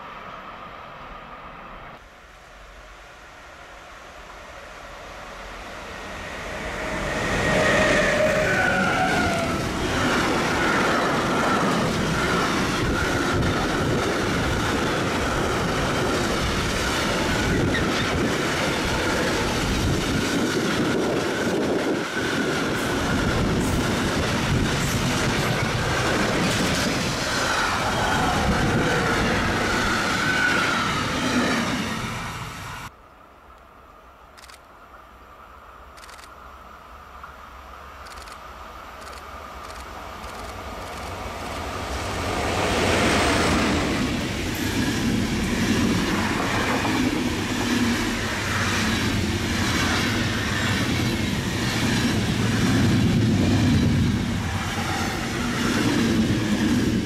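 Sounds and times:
train passing: 0.0s - 57.0s.

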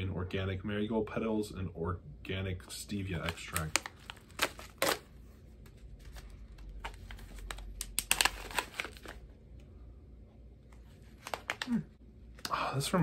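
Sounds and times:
foil pouch crinkling: 3.1s - 5.2s, 5.8s - 9.3s.

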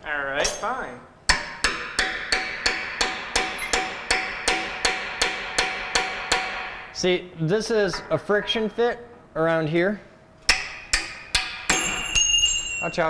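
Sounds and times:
hammer striking chisel on metal: 0.4s - 7.0s, 10.5s - 13.0s.

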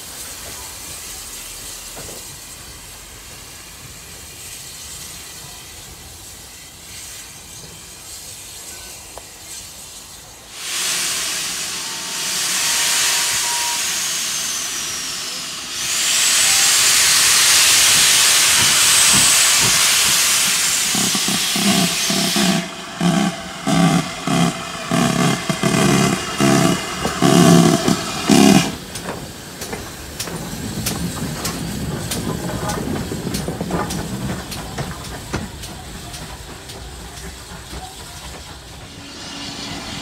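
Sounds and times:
steam hissing: 0.0s - 40.0s
steam engine exhaust chuffs: 10.6s - 40.0s.

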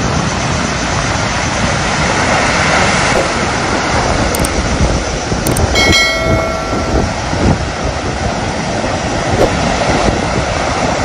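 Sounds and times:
bell-like chime: 5.7s - 7.6s
surf washing up beach: 6.2s - 11.0s.

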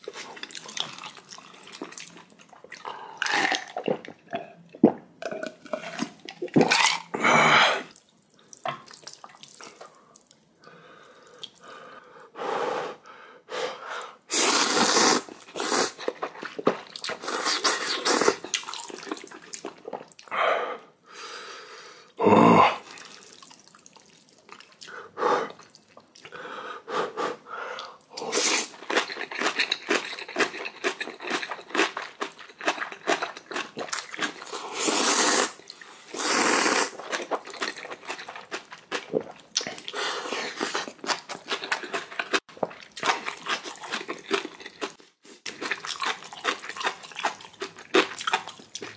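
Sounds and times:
person chewing: 0.0s - 7.2s, 14.3s - 20.3s, 22.8s - 26.4s, 27.8s - 48.9s
person slurping noodles: 14.3s - 18.9s, 27.0s - 28.9s, 33.8s - 37.5s.

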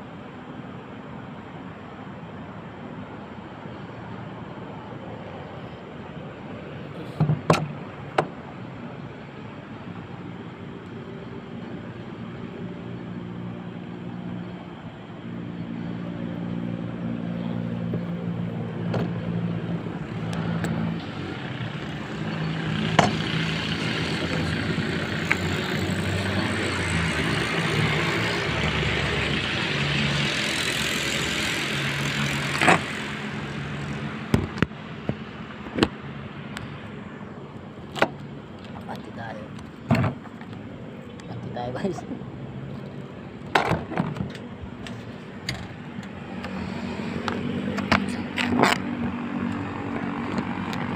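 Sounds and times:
road traffic hum: 0.0s - 50.9s.

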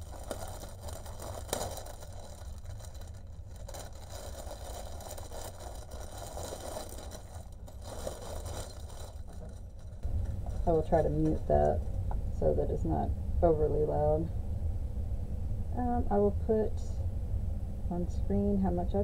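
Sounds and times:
plastic bag crackling and rustling: 0.0s - 12.0s
low steady hum: 0.0s - 19.0s.

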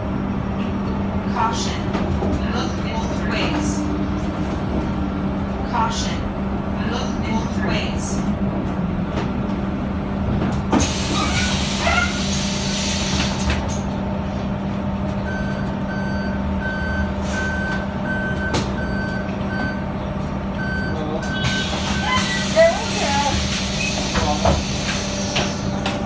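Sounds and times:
bus engine idling: 0.0s - 26.0s
pneumatic air hiss: 10.8s - 13.5s, 21.6s - 25.7s
repeating warning beep: 15.3s - 19.9s.

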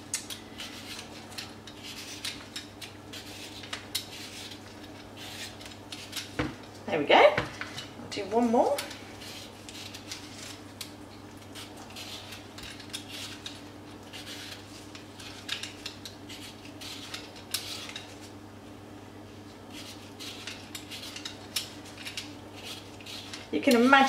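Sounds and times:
steady low hum: 0.0s - 24.0s
peeler scraping beetroot skin: 0.2s - 6.3s, 8.7s - 10.6s, 11.5s - 18.2s, 19.7s - 24.0s.

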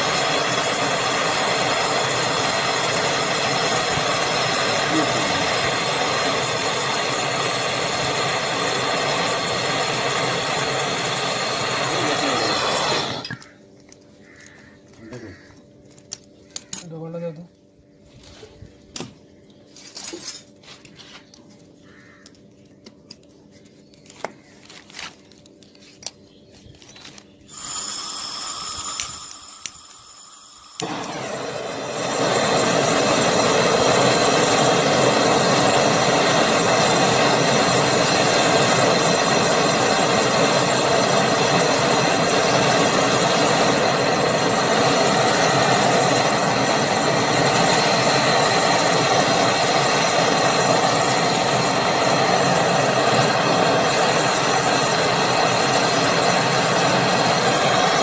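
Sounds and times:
gas torch hissing: 0.0s - 13.6s, 27.0s - 58.0s.

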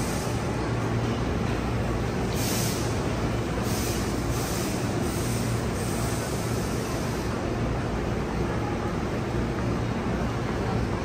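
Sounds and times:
high hiss from wheels and rails: 0.0s - 10.8s
electric train low hum: 0.0s - 11.0s.

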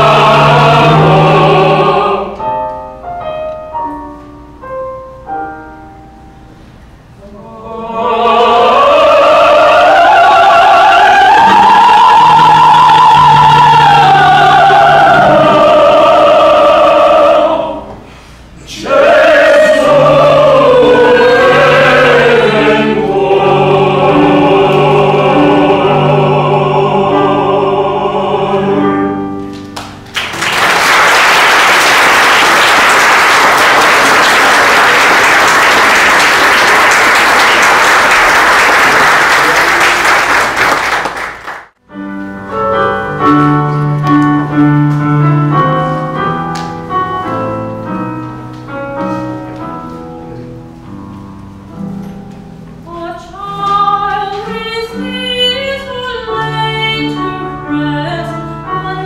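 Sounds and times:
mixed choir singing: 0.0s - 2.5s, 7.2s - 18.0s, 18.6s - 29.3s
piano notes: 0.0s - 39.2s, 41.7s - 59.0s
audience applause: 29.8s - 41.8s.

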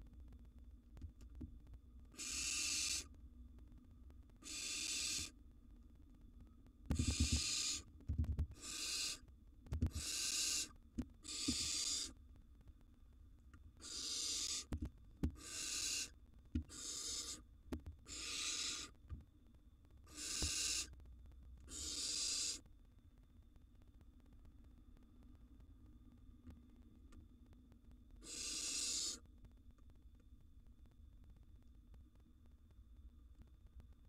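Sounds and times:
owl nestlings rasping hiss: 2.1s - 3.1s, 4.4s - 5.4s, 6.9s - 7.9s, 8.6s - 9.2s, 9.9s - 12.2s, 13.8s - 19.0s, 20.1s - 21.0s, 21.7s - 22.7s, 28.2s - 29.2s.

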